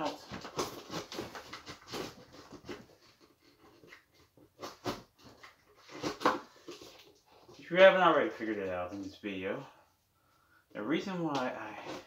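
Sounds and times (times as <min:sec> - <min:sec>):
fingers scratching cardboard box: 0:00.2 - 0:06.4.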